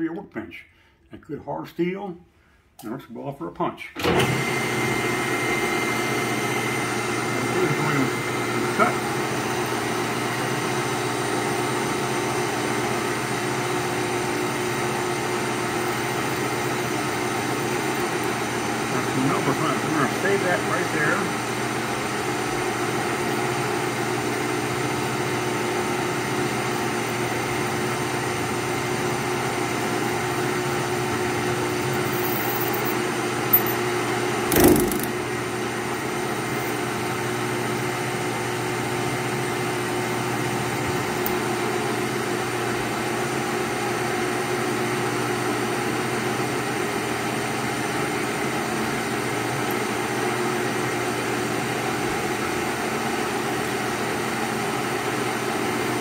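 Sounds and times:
metal lathe cutting: 12.6s - 21.5s, 34.5s - 35.2s.

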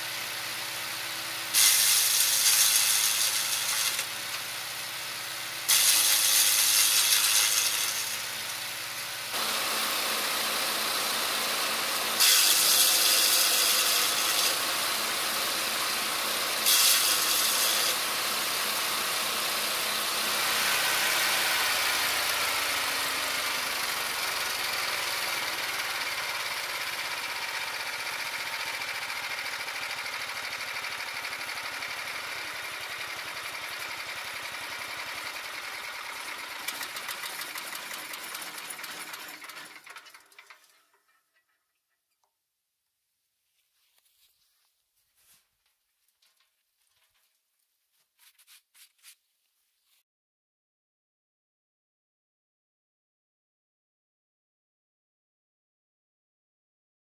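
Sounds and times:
garden shredder engine running: 0.0s - 41.0s.

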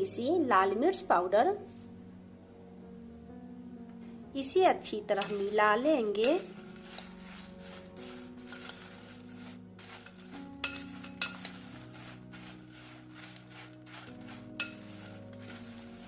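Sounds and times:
soft background music: 0.0s - 16.0s
spoon scraping fried potatoes: 5.1s - 16.0s
spoon clinking on glass bowl: 5.2s - 7.5s, 9.8s - 12.0s, 12.8s - 15.8s.

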